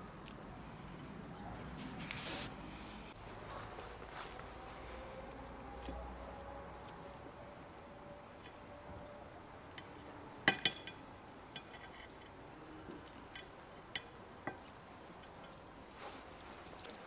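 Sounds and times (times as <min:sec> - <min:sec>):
cutlery clinking on plates: 0:10.4 - 0:11.0.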